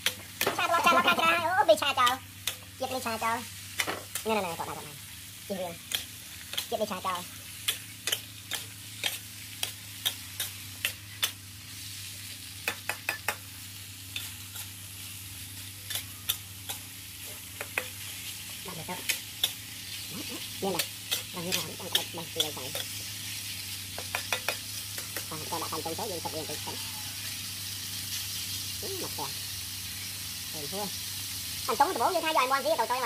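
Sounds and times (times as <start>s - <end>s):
food sizzling in a wok: 0.0s - 33.0s.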